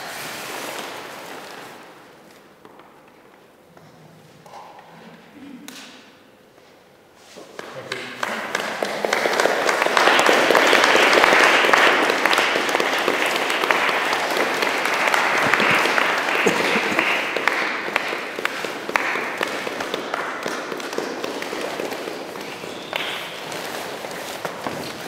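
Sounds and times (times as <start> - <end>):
audience applauding: 7.6 - 25.0.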